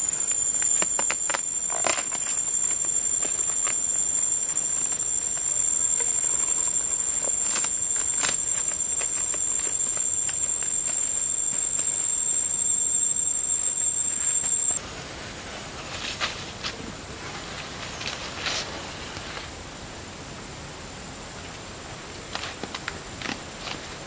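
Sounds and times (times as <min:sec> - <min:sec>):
shrill insect chorus: 0:00.0 - 0:14.8.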